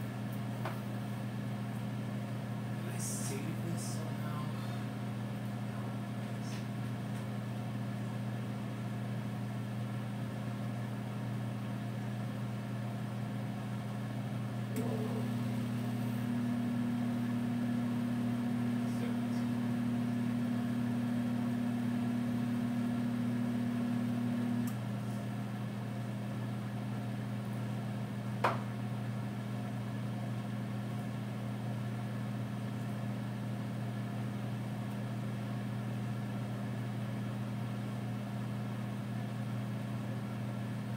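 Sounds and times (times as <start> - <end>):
microwave oven humming: 0.0 - 40.9.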